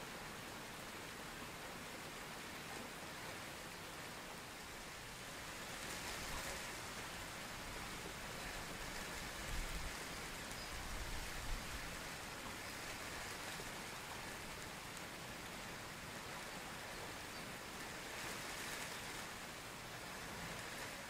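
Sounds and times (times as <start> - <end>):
heavy rain on pond water: 0.0 - 21.0.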